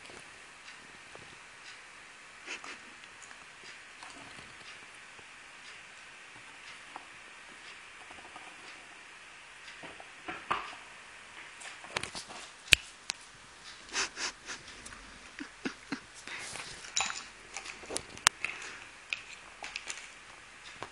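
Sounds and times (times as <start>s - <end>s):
dog sniffing and snuffling: 13.7s - 15.0s.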